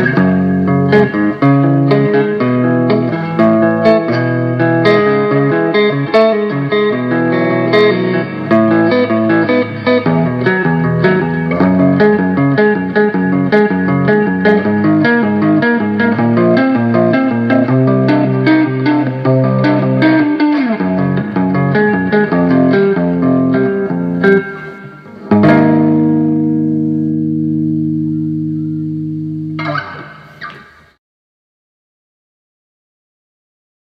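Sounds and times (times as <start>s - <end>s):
electric guitar lead lines: 0.0s - 31.0s
guitar chord ringing: 0.0s - 31.0s
guitar string scratch: 29.6s - 31.0s.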